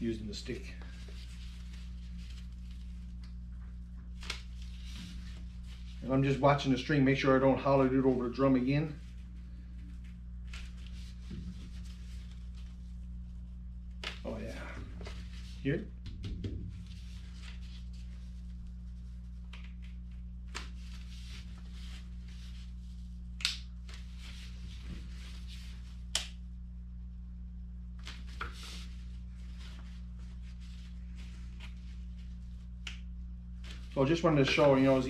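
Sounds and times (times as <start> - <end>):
low room hum: 0.0 - 35.0.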